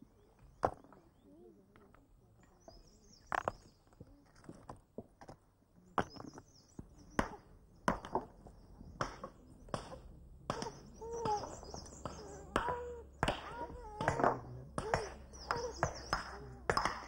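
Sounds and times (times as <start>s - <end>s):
hammers striking rocks: 6.0s - 17.0s.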